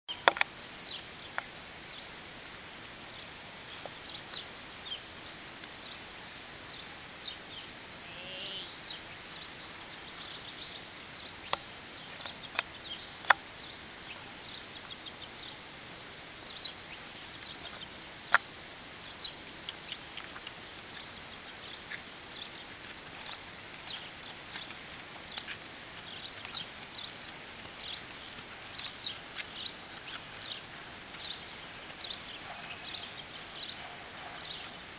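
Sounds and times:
steady high-pitched hiss: 0:00.1 - 0:34.9
bird chirps: 0:20.6 - 0:34.9
sharp clicks: 0:22.4 - 0:32.9.

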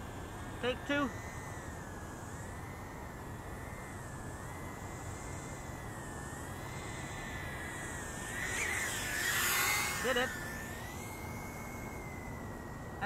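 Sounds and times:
quadcopter motors whining: 0:00.0 - 0:13.0
steady hiss: 0:00.0 - 0:13.0.

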